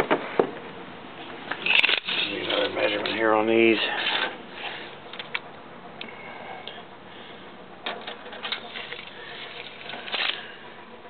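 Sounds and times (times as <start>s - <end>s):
tape measure scraping metal: 1.5s - 3.2s.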